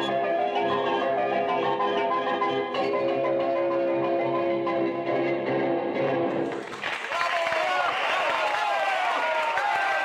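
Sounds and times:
instrumental music with held notes: 0.0s - 6.6s.

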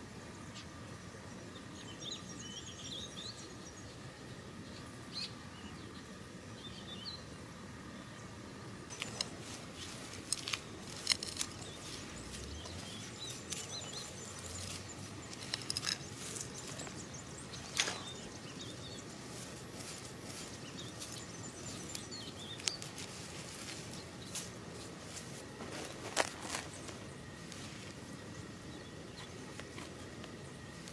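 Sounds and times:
background hiss: 0.0s - 30.9s
small birds chirping: 0.2s - 8.3s, 8.9s - 30.9s.

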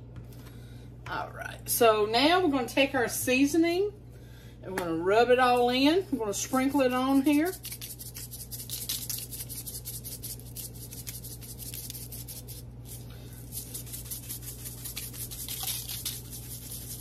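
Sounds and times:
steady low hum: 0.0s - 17.0s
seasoning shaker shaking: 6.4s - 17.0s.

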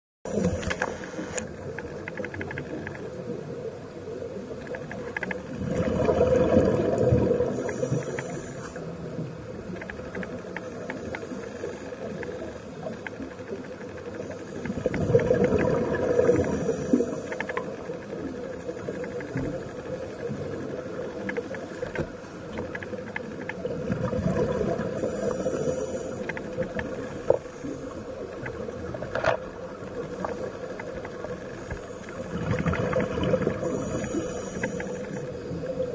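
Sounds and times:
underwater wash: 0.3s - 35.9s
exhaled bubbles rumbling: 4.4s - 7.8s, 14.2s - 22.1s, 22.7s - 25.6s, 26.3s - 35.9s
regulator hiss: 7.4s - 9.2s, 16.1s - 17.6s, 25.0s - 28.0s, 33.6s - 35.8s.

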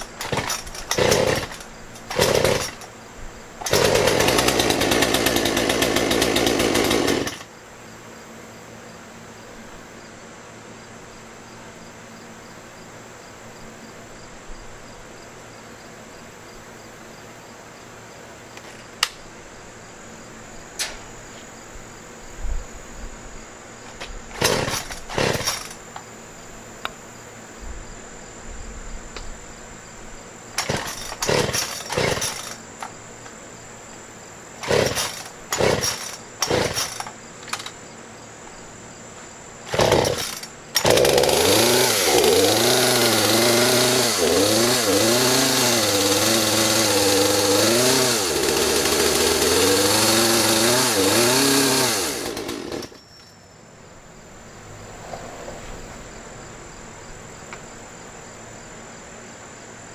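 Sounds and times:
chainsaw running: 0.0s - 3.0s, 3.6s - 7.5s, 24.3s - 25.9s, 30.5s - 33.0s, 34.6s - 37.8s, 39.6s - 53.0s
high insect whine: 0.0s - 59.9s.

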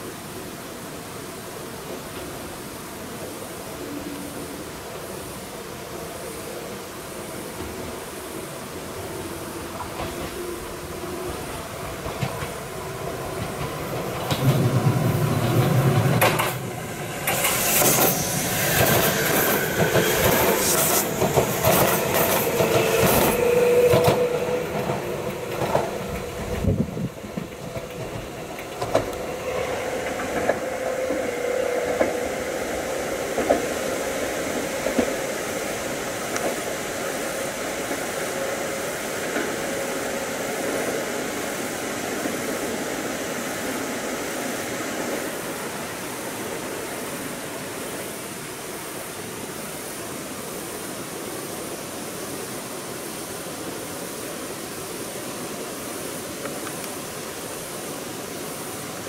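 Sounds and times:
electric train passing: 0.0s - 59.0s
steady rushing hiss: 0.0s - 59.0s
wheels clicking over rail joints: 11.3s - 32.2s.

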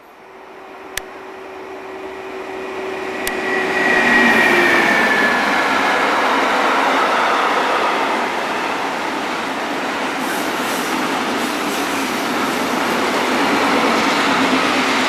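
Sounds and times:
locomotive high whine: 0.0s - 9.0s.

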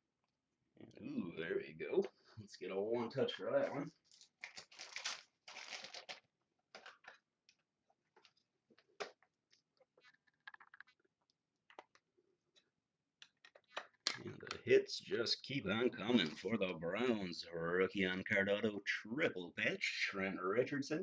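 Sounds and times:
cards and plastic rustling: 3.5s - 12.6s.

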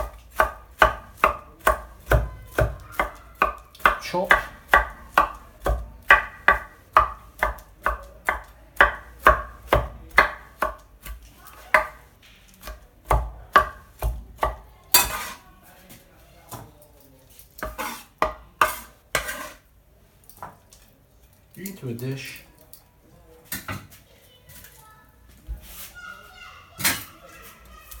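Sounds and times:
cleaver chopping on wooden board: 0.0s - 12.0s, 12.6s - 15.3s, 17.6s - 19.5s.

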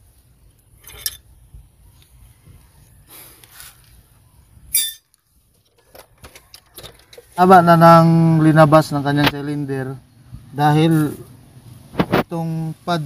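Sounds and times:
metallic clink: 0.8s - 1.3s, 4.7s - 5.2s.

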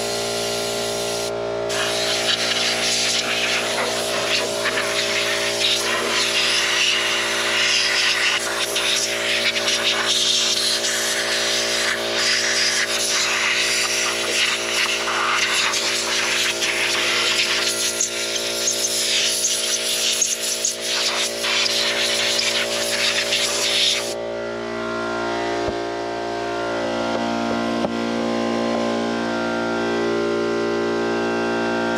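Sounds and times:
compressed air hissing: 0.0s - 24.2s.

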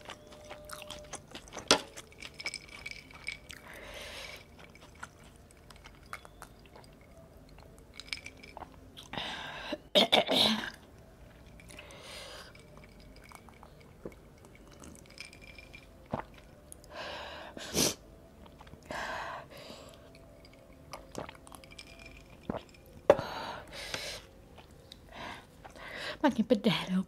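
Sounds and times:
sipping and swallowing: 20.4s - 22.8s.

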